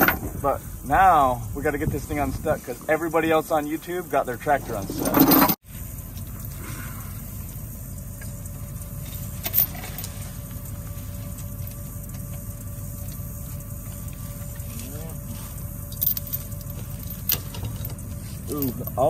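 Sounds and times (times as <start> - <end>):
engine idling: 0.0 - 19.0
metallic chain clank: 4.6 - 5.6, 15.9 - 19.0.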